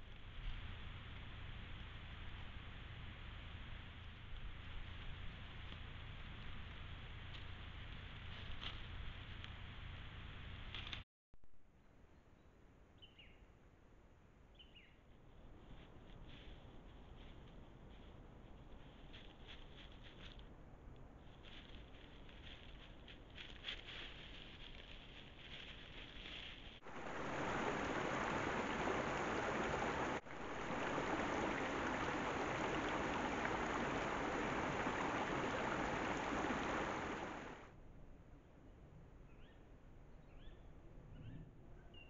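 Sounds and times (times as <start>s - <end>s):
dry leaves rustling: 15.5s - 20.5s, 21.2s - 37.6s
stream rushing over rocks: 26.8s - 37.7s.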